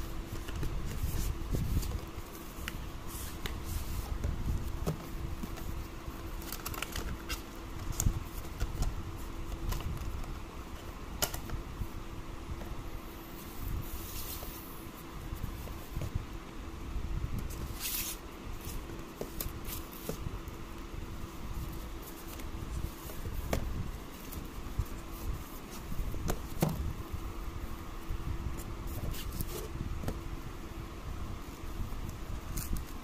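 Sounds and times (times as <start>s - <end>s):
steady faint hum: 0.0s - 33.0s.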